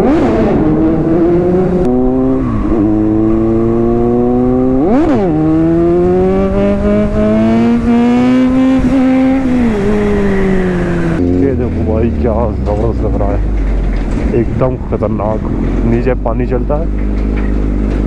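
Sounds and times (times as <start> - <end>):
motorcycle engine accelerating: 0.0 - 18.0
wind noise: 0.0 - 18.0.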